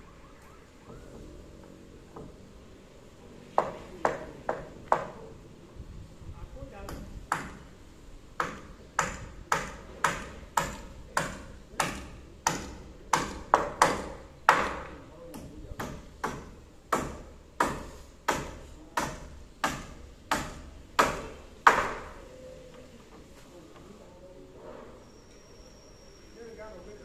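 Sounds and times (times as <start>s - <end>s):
hammer knocking on wood: 3.6s - 5.2s, 8.4s - 22.1s.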